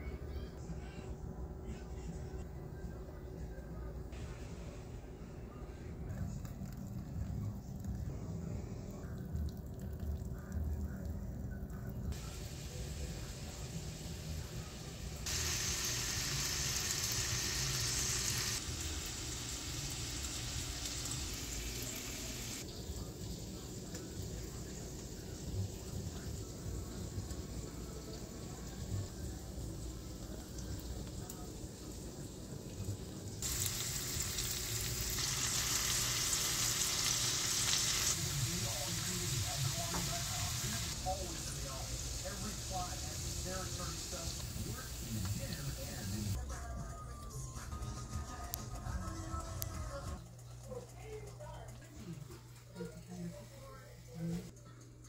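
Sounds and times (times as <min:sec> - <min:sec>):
sausage sizzling in oil: 0:12.1 - 0:46.4.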